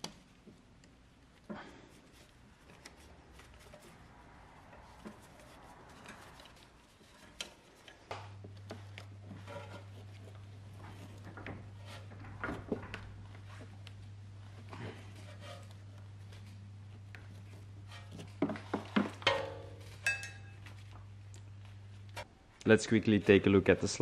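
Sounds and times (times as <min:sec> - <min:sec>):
low steady hum: 0:00.0 - 0:24.0
hand tools clicking and tapping: 0:18.2 - 0:20.7.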